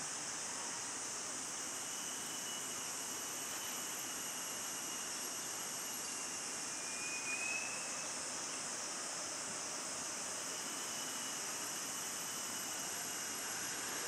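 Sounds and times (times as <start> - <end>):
insects droning: 0.0 - 14.0
faint whistled note: 6.1 - 8.2.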